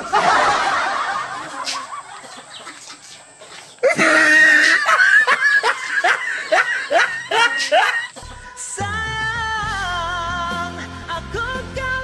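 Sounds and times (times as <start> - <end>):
boy cackling with laughter: 0.0 - 3.0, 3.8 - 8.4.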